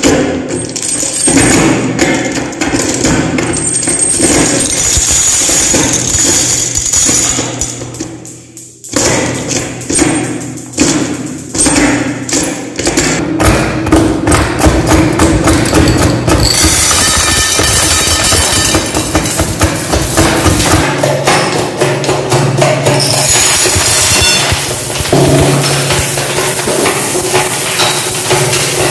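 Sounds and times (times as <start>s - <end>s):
marbles clacking in meat grinder: 2.4s - 8.0s, 14.6s - 20.9s, 23.0s - 28.9s
marbles poured into hopper: 23.2s - 28.9s.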